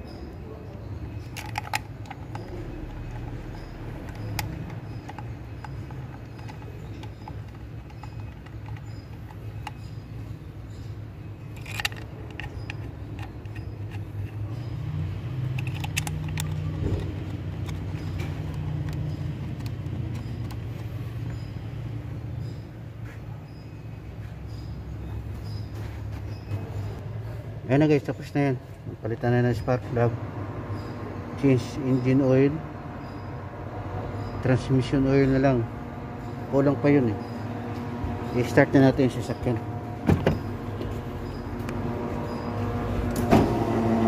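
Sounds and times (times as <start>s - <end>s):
plastic and metal clicks: 1.2s - 10.0s, 11.5s - 14.6s, 15.4s - 21.4s.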